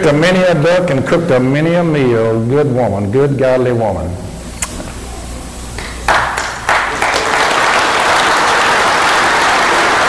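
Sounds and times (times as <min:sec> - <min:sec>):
audience applauding: 0:05.8 - 0:10.0.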